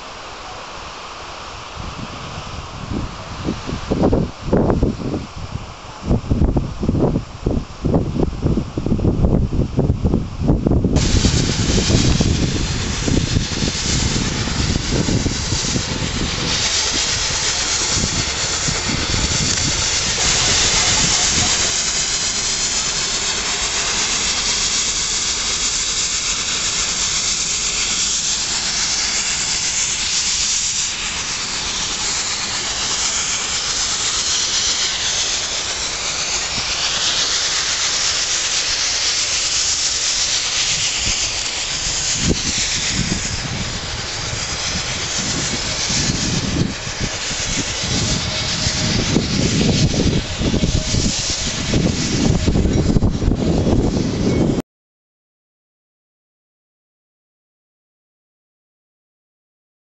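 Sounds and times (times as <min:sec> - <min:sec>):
steam locomotive hissing: 0:00.0 - 0:54.6
wind buffeting microphone: 0:01.8 - 0:24.5, 0:40.6 - 0:54.6.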